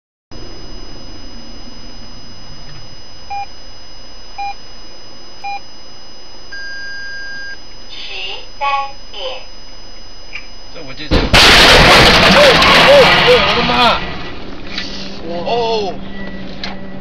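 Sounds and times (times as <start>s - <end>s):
longer higher beep: 0.4s - 4.6s, 5.4s - 7.7s, 15.8s - 17.0s
short electronic beeps: 1.2s - 4.6s, 5.4s - 7.7s, 16.0s - 17.0s.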